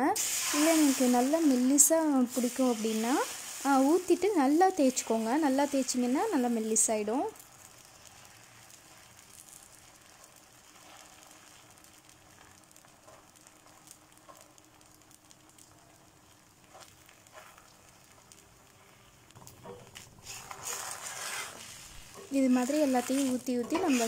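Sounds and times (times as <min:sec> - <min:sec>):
batter sizzling on griddle: 0:00.0 - 0:24.0
ladle scraping pan: 0:19.6 - 0:24.0.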